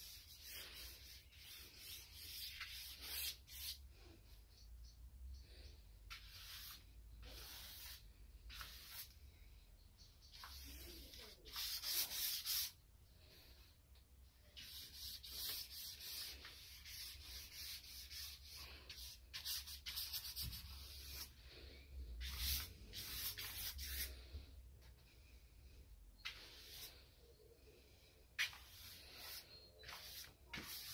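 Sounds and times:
paintbrush scraping on paper: 0:00.0 - 0:03.8, 0:06.1 - 0:09.1, 0:10.3 - 0:12.8, 0:14.6 - 0:21.3, 0:22.2 - 0:24.3, 0:26.2 - 0:27.1, 0:28.4 - 0:30.9.

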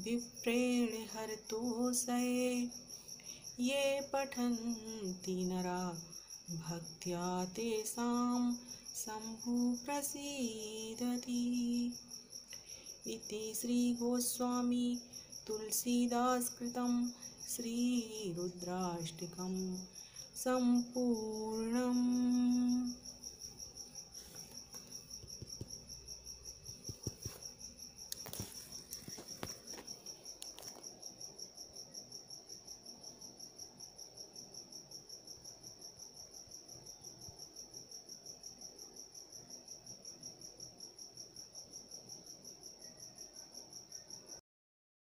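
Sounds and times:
cricket chirping: 0:00.0 - 0:44.4.

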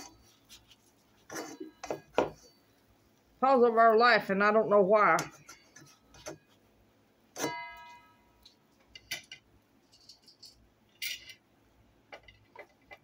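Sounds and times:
kitchen utensils clicking and rattling: 0:09.0 - 0:11.4.

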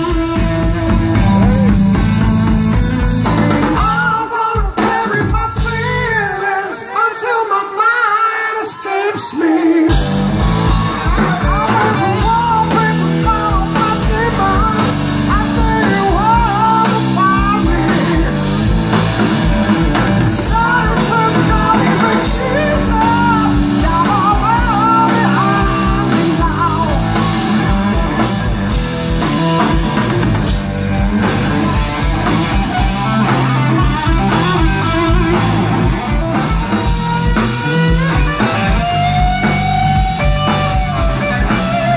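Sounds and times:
bass guitar: 0:00.0 - 0:06.7, 0:09.9 - 0:41.9
drums: 0:00.0 - 0:41.9
electric guitar: 0:00.0 - 0:41.9
man singing: 0:03.7 - 0:10.2, 0:11.1 - 0:18.6, 0:20.2 - 0:28.3.

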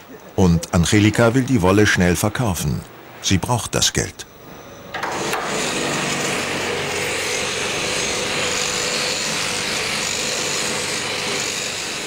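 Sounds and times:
machine sheep shears buzzing: 0:05.0 - 0:12.0.

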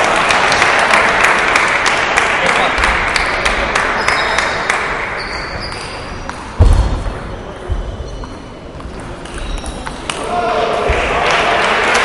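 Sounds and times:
applause: 0:00.0 - 0:05.1, 0:10.9 - 0:12.0.

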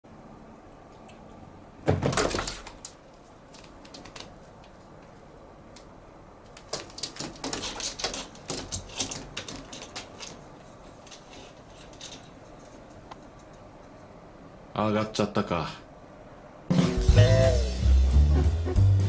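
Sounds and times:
claws scratching curtain: 0:06.6 - 0:13.1
curtain runners rattling on rail: 0:06.6 - 0:13.6.

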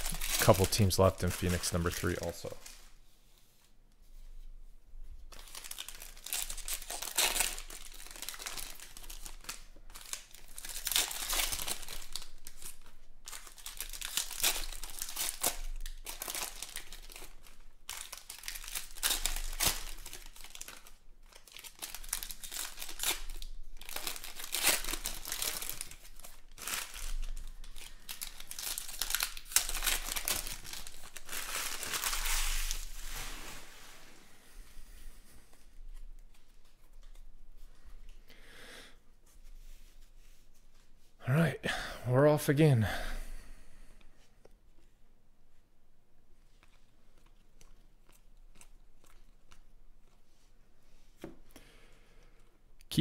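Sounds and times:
foil wrappers crinkling and tearing: 0:00.0 - 0:02.8, 0:05.3 - 0:33.9, 0:46.6 - 0:50.2.

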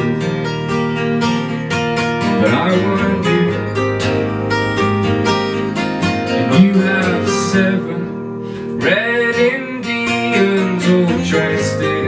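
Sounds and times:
acoustic guitars strumming: 0:00.0 - 0:12.0
man singing: 0:02.2 - 0:03.9, 0:06.1 - 0:12.0.

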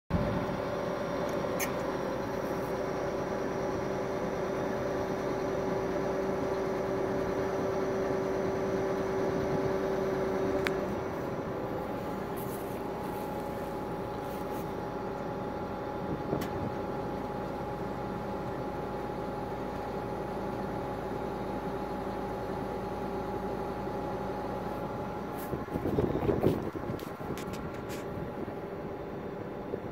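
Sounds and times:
engine hum: 0:00.1 - 0:29.9.

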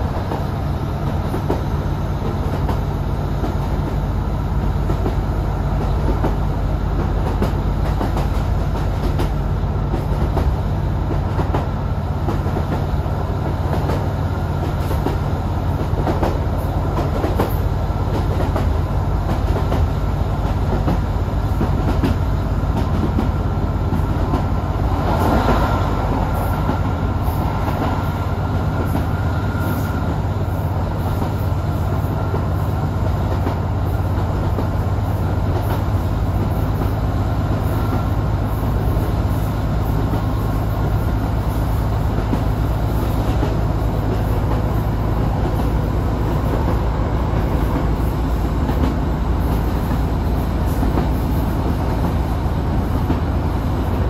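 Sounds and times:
wheels rumbling on rail: 0:00.0 - 0:54.0.

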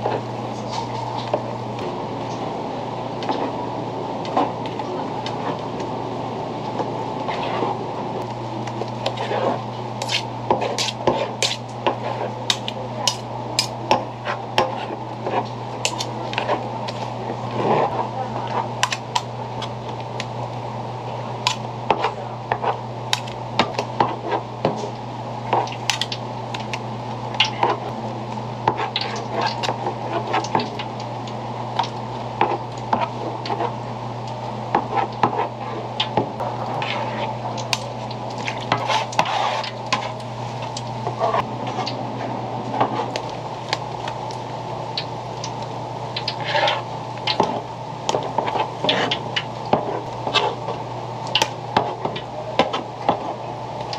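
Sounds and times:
steady low hum: 0:00.0 - 0:53.9.

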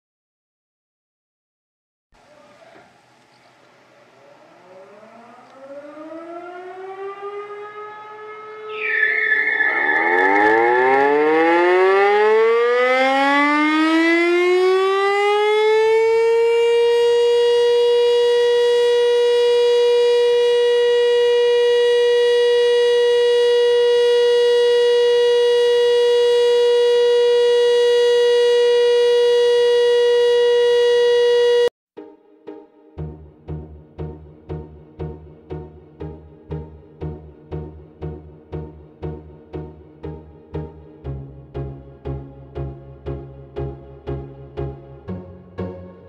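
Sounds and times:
fire siren wailing: 0:04.0 - 0:31.7.

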